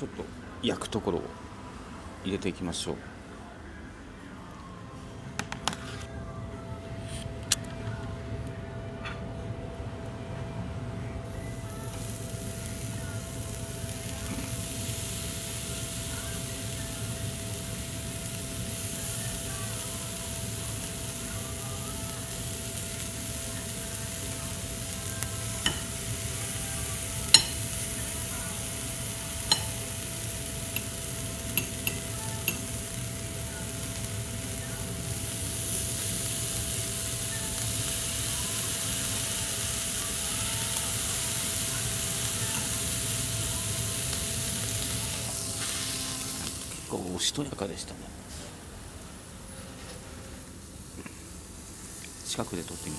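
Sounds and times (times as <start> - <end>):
meat sizzling on a grill: 11.3 - 47.5, 50.7 - 52.9.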